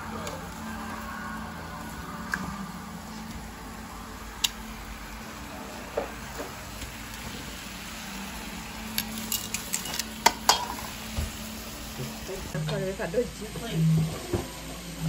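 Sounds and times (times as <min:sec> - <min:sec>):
meat sizzling on griddle: 0:00.0 - 0:12.6
metal tongs clinking on bowl: 0:09.0 - 0:10.9.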